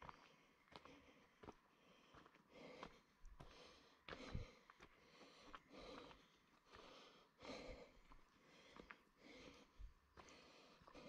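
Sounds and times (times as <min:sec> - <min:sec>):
light footsteps on path: 0:00.0 - 0:11.0
soft breathing: 0:00.0 - 0:11.0.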